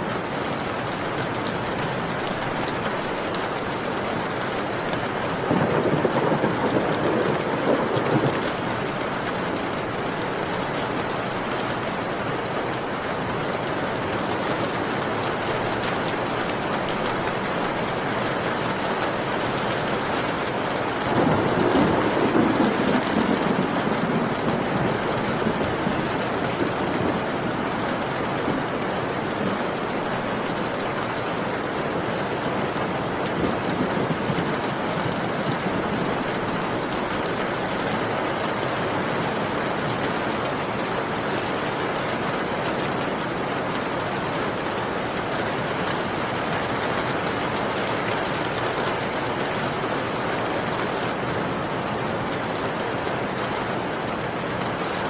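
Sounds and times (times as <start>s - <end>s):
steady rain falling: 0.0s - 55.0s
thunder rolling: 5.5s - 8.8s, 20.9s - 29.8s, 33.2s - 37.2s.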